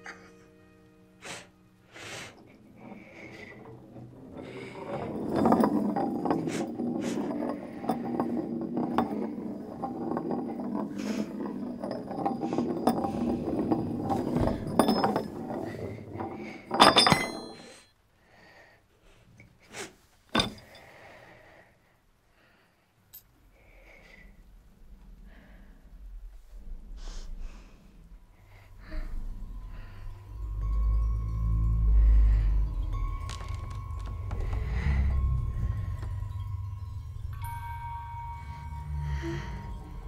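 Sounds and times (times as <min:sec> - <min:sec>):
metal disc spinning and rattling: 0:01.9 - 0:17.8
metal disc clinking on floor: 0:02.0 - 0:17.9, 0:31.5 - 0:40.0.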